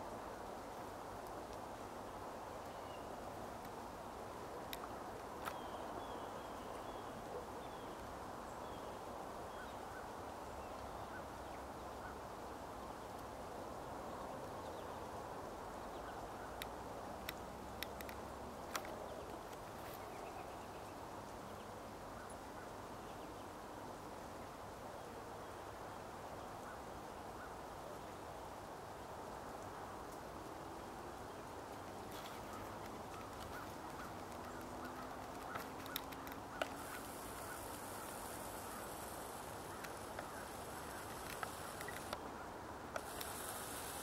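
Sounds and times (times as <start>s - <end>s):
outdoor hiss: 0.0s - 44.0s
sharp clicks: 32.7s - 42.2s, 43.0s - 44.0s.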